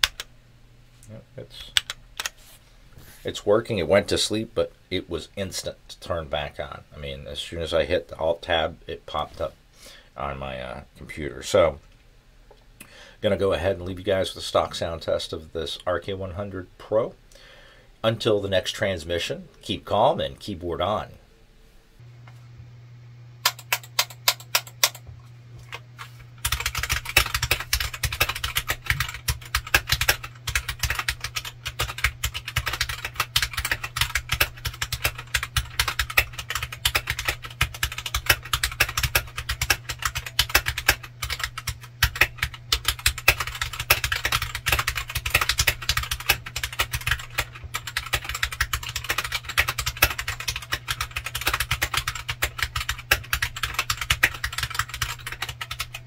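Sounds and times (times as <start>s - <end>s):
steady low hum: 0.0s - 56.0s
mechanical keyboard typing: 23.4s - 25.0s, 26.4s - 56.0s.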